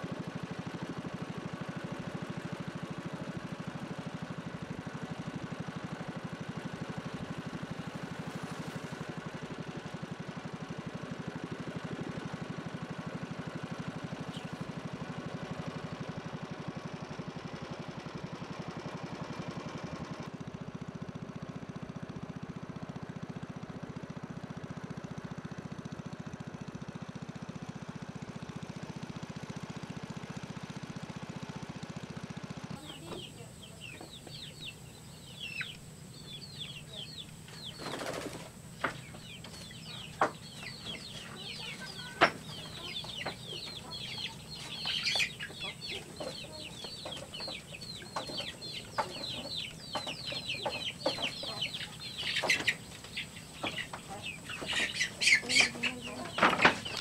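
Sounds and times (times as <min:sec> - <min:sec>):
small boat engine running: 0:00.0 - 0:57.0
high bird chirps: 0:32.8 - 0:38.1, 0:38.7 - 0:57.0.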